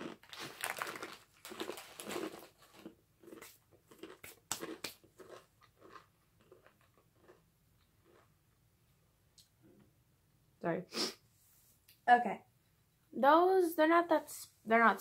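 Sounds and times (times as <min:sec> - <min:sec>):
chewing crunchy chips: 0:00.0 - 0:08.4.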